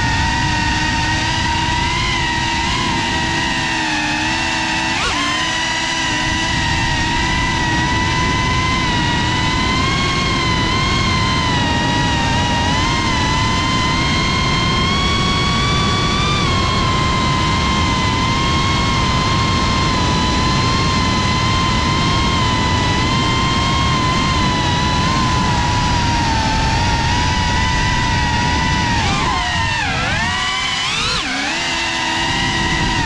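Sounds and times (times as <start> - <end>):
drone motors whining: 0.0 - 33.0
wind rush: 16.5 - 33.0.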